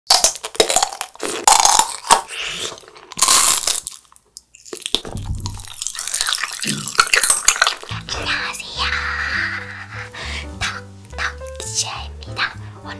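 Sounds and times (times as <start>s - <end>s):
hard candy crunching: 0.1s - 8.1s.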